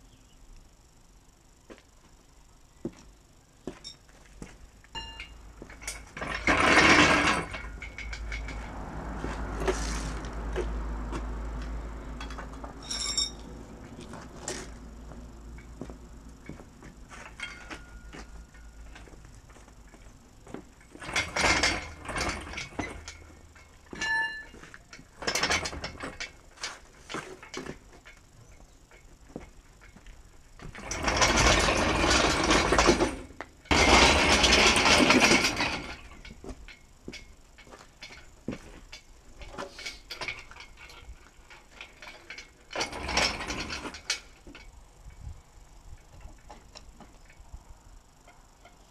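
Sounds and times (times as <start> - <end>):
ringing metallic clink: 5.0 - 5.4, 12.8 - 13.5, 24.0 - 24.6
metal clattering scrape: 5.2 - 10.5, 20.8 - 27.8, 30.6 - 36.8, 37.6 - 44.7
casters rolling on rough concrete: 5.6 - 44.7.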